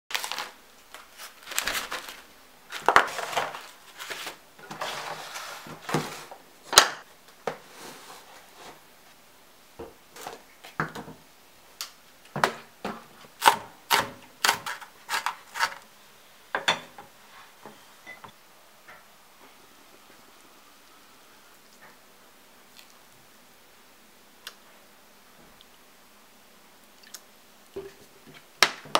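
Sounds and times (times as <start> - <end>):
plastic packaging rustling: 0.1 - 6.4.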